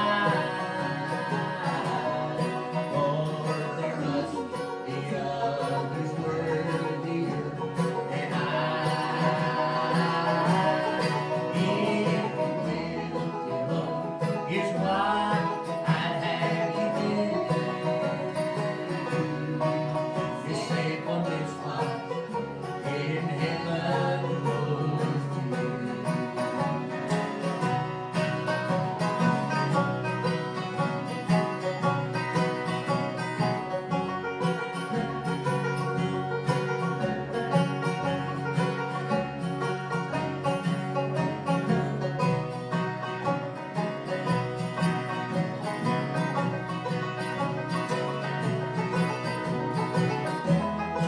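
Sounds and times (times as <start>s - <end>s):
plucked string instruments: 0.0s - 51.0s
upright bass plucking: 0.0s - 51.0s.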